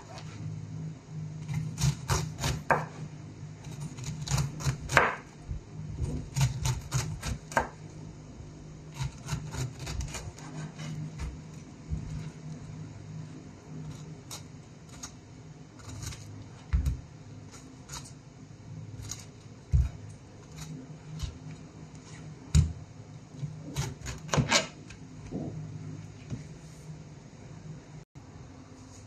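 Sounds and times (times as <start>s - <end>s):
steady low hum: 0.0s - 29.0s
knife crunching through pineapple rind: 8.9s - 11.0s.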